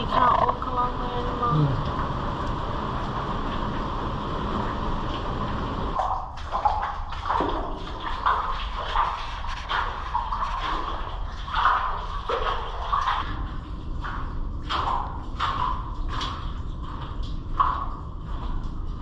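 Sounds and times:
footsteps splashing through water: 6.0s - 19.0s.

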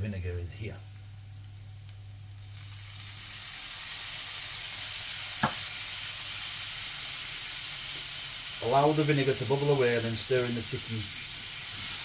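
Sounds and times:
vinegar sizzling in a hot pan: 0.6s - 12.0s.

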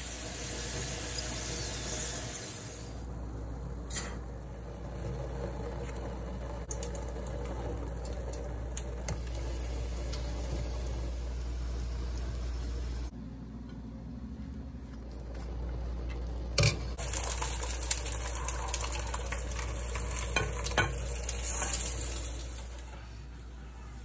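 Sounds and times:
steady low hum: 2.6s - 21.3s
tortilla sizzling in oil: 17.0s - 22.9s.

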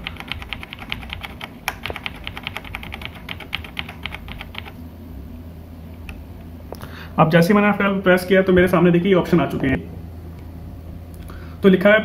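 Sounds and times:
keyboard key tapped rapidly: 0.0s - 4.8s.

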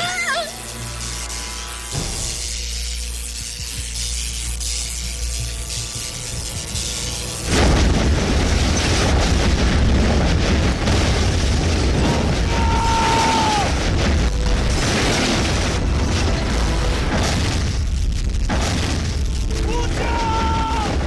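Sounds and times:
deep rumble of fire and debris: 3.2s - 21.0s
explosion blast: 7.5s - 21.0s.

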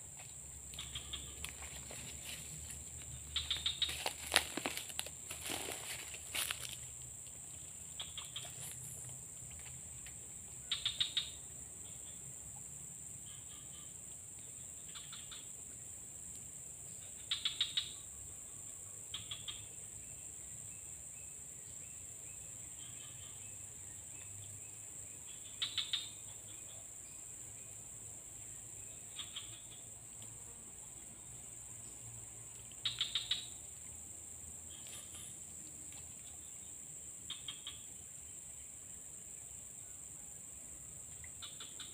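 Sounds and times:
insects droning: 0.0s - 41.9s
short rattling calls: 0.8s - 2.4s, 3.4s - 6.8s.

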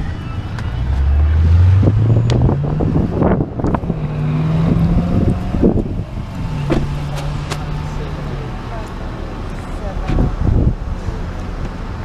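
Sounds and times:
vehicle engine revving: 0.6s - 11.4s
wind on microphone: 1.6s - 7.0s, 10.1s - 11.0s.

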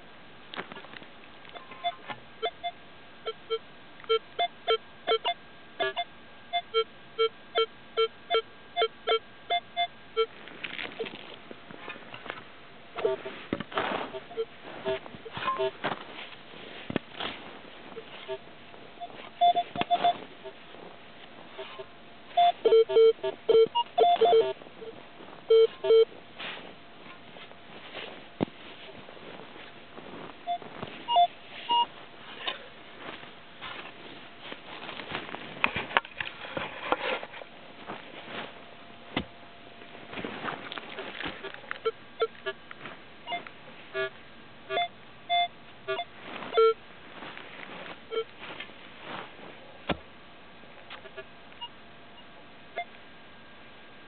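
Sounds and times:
metal detector beeps: 1.5s - 10.3s, 13.0s - 15.8s, 19.0s - 20.6s, 21.5s - 26.1s, 30.4s - 31.9s, 43.3s - 46.8s, 48.1s - 48.3s.

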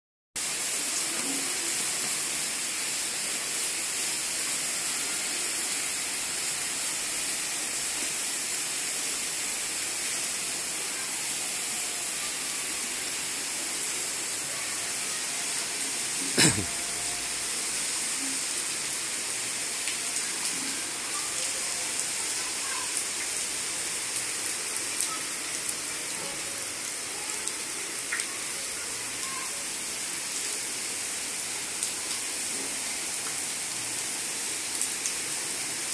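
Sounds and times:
heavy rain falling: 0.4s - 35.9s.

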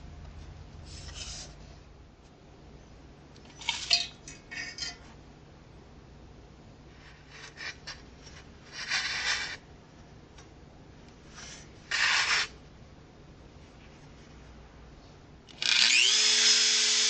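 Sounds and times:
steel wire scraping: 0.8s - 1.6s, 7.0s - 9.6s.

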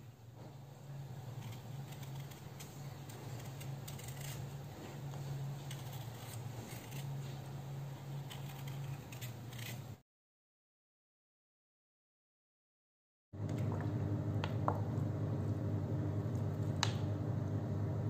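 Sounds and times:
steady low hum: 0.0s - 10.0s, 13.4s - 18.0s
knife peeling potato: 0.9s - 10.0s.

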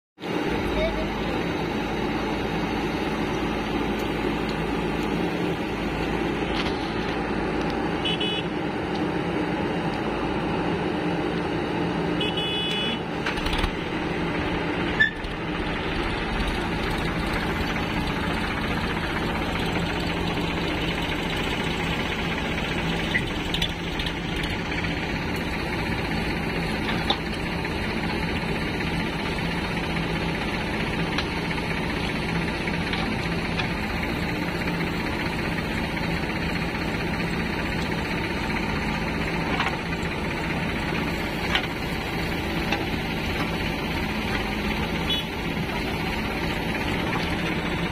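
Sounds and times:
diesel engines running: 0.2s - 47.9s.

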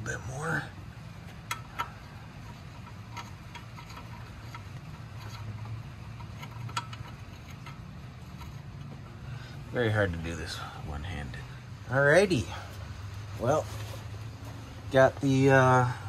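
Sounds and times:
steady low hum: 0.0s - 16.0s
light metallic clicks and taps: 1.2s - 9.0s.

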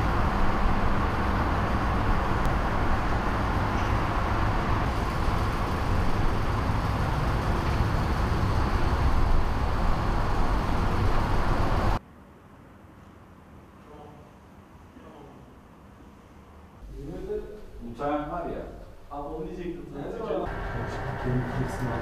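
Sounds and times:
fluctuating low rumble: 20.5s - 22.0s.

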